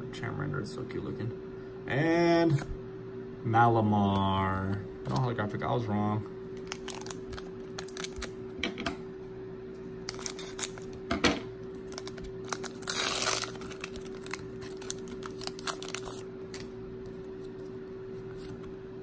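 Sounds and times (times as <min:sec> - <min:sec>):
foil pack crinkling: 0:06.6 - 0:08.4, 0:10.0 - 0:11.0, 0:11.7 - 0:16.7
scissors cutting foil: 0:10.1 - 0:11.0, 0:11.9 - 0:16.2.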